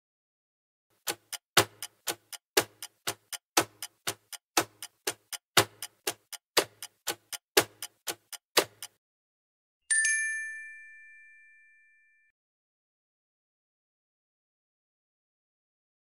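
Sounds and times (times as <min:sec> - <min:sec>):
clock ticking: 0:00.9 - 0:09.0.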